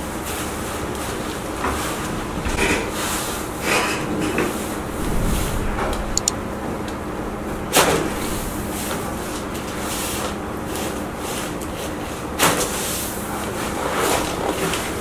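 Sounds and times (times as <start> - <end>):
steady hum: 4.8 - 9.1.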